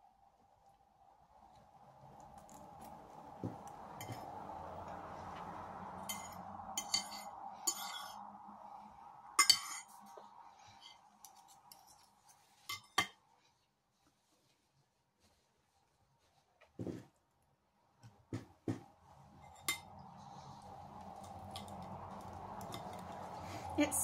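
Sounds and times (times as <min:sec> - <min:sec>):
cutlery scraping a ceramic plate: 0:06.1 - 0:08.2, 0:09.4 - 0:09.9, 0:12.7 - 0:13.1.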